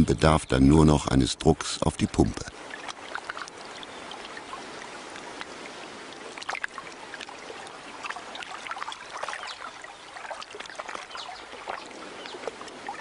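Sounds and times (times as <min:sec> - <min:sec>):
water sloshing in a tank: 0:02.1 - 0:13.0.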